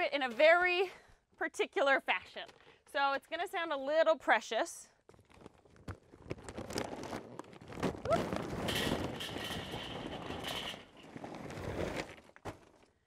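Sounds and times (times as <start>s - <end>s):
bag rustling: 5.2s - 12.8s
charcoal clattering on metal grate: 8.0s - 11.1s.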